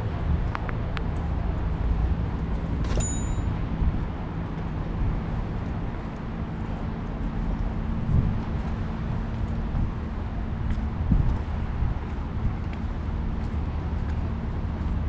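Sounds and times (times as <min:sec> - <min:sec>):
city traffic rumble: 0:00.0 - 0:15.0
sharp metallic clink: 0:02.8 - 0:03.6.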